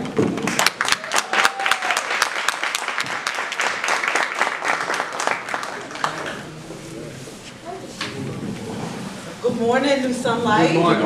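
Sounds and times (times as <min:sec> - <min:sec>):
audience applauding: 0:00.4 - 0:06.8.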